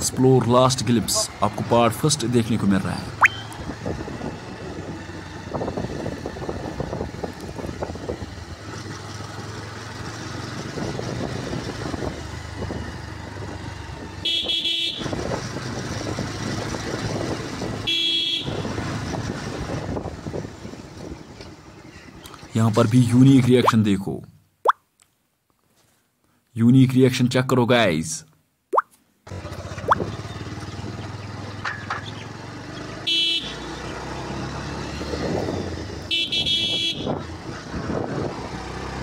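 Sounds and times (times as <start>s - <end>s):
motorcycle engine running: 2.6s - 21.9s, 29.3s - 39.0s
horn short blasts: 14.2s - 15.2s, 17.9s - 18.7s, 33.1s - 33.7s, 36.1s - 37.2s.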